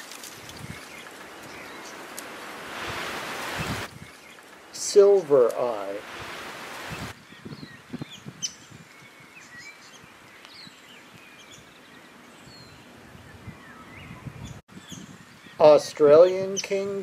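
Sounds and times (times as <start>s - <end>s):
light low rustling: 0.0s - 7.1s
birds chirping and whistling: 6.1s - 15.6s.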